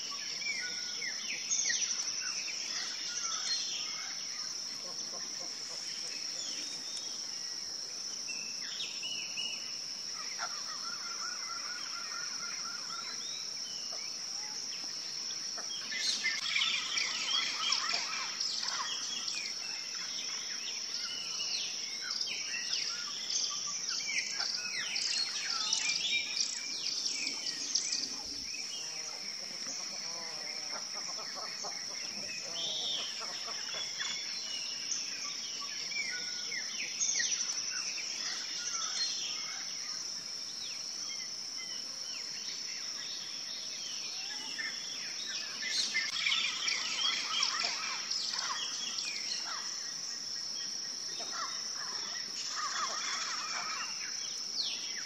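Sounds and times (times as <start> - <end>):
birds chirping and calling: 15.6 - 20.4, 45.4 - 49.7, 51.2 - 54.0
high-pitched insect drone: 44.1 - 55.0.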